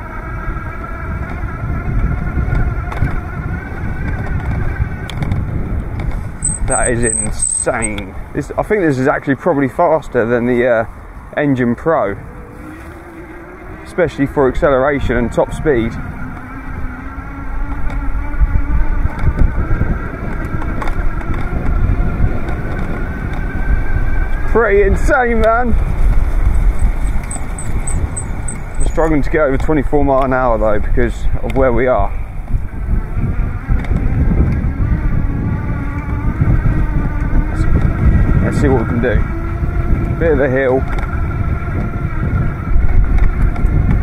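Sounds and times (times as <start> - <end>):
wind rumble on microphone: 0.0 - 44.0
electric motor whining: 0.5 - 8.2, 12.2 - 29.3.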